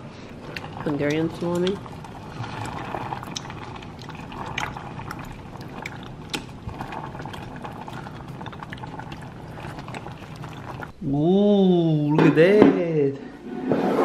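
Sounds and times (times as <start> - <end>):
broth boiling and bubbling: 0.0 - 11.0.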